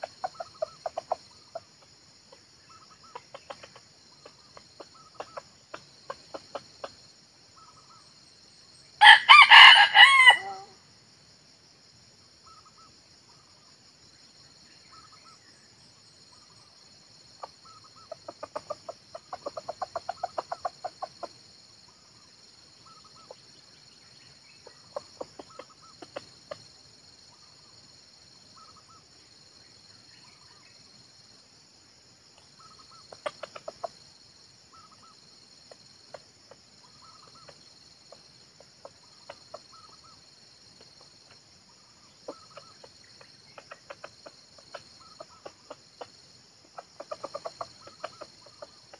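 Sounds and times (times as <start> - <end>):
junglefowl clucking: 0.0 - 7.0, 9.0 - 10.7, 17.4 - 21.4, 22.8 - 23.4, 24.6 - 26.7, 32.6 - 34.0, 34.7 - 40.2, 42.1 - 48.9.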